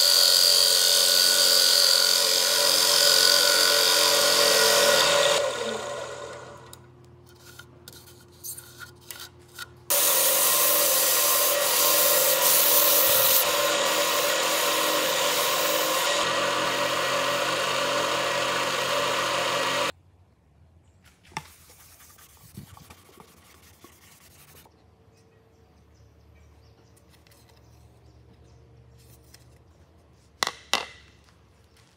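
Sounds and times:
gouge cutting wood: 0.0s - 6.5s, 9.9s - 19.9s
lathe humming: 0.0s - 6.8s, 9.9s - 19.9s.

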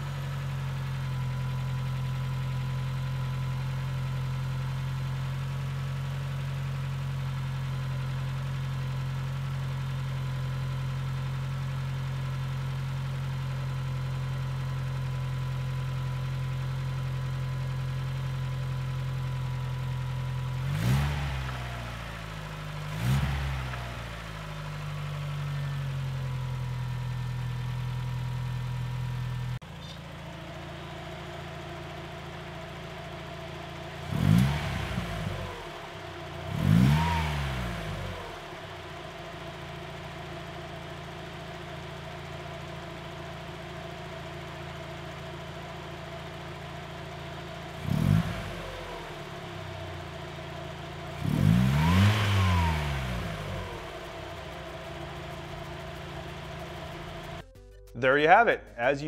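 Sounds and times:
car engine idling: 0.0s - 59.0s
car engine revving: 20.4s - 25.6s, 30.0s - 46.3s, 47.0s - 57.4s.

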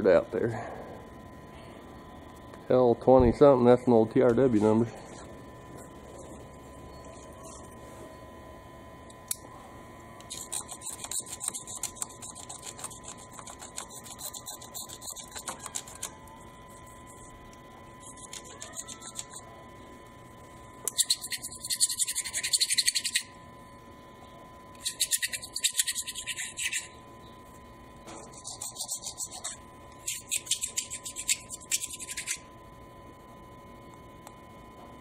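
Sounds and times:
metal tool scraping piston: 10.3s - 16.0s, 20.9s - 23.2s, 24.8s - 27.0s, 28.1s - 32.4s.

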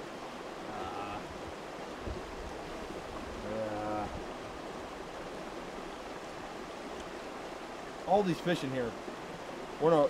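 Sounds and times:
stream rushing: 0.0s - 10.0s.

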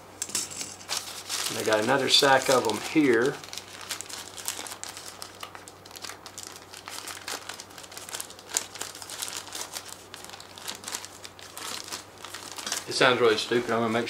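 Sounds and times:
plastic bag crinkling: 0.3s - 14.0s.

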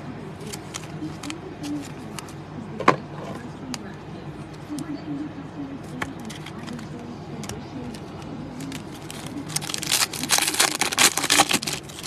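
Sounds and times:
foil wrapper tearing and crinkling: 8.6s - 12.0s.

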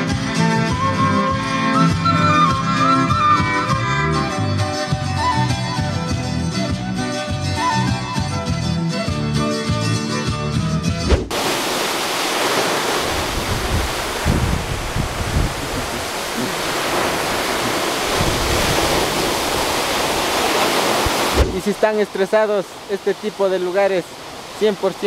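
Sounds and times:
folk music with fiddle: 0.0s - 10.4s
waterfall rushing: 11.1s - 25.0s
low rumbles: 13.1s - 19.8s.

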